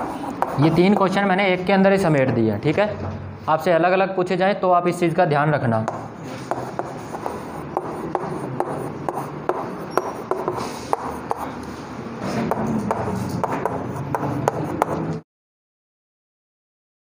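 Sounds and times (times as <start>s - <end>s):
chalk tapping on board: 0.0s - 1.2s, 5.8s - 11.7s, 12.4s - 15.2s
chalk scratching on blackboard: 0.0s - 1.3s, 5.9s - 15.2s.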